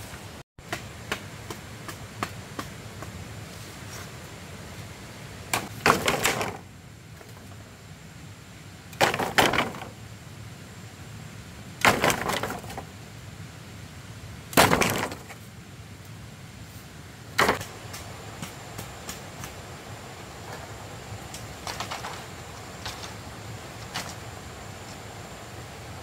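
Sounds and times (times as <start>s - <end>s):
axe chopping into wood: 14.5s - 15.2s.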